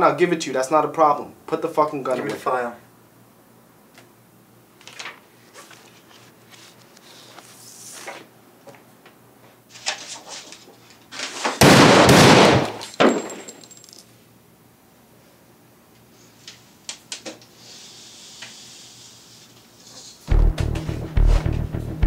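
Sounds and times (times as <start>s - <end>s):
faint clicks and rustles: 4.8s - 11.4s
pistol shot: 11.6s - 12.8s.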